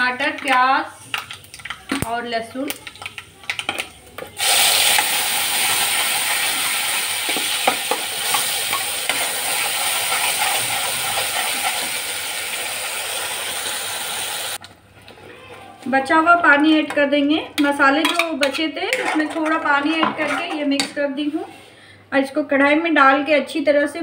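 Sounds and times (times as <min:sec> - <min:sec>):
paste sizzling in hot oil: 0:04.4 - 0:14.6.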